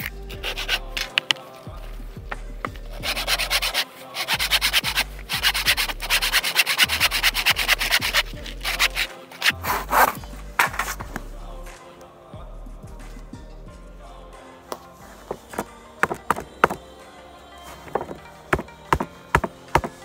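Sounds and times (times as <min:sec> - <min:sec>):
handsaw cutting wood: 0:00.0 - 0:01.4, 0:03.0 - 0:11.1, 0:15.3 - 0:16.8, 0:17.9 - 0:20.0.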